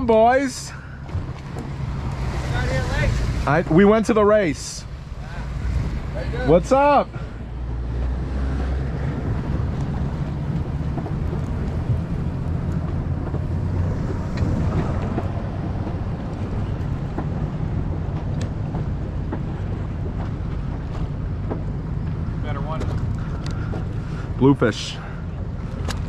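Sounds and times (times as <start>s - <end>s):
outboard engines idling: 0.0s - 26.0s
water noise: 0.0s - 26.0s
wind on microphone: 7.3s - 22.4s.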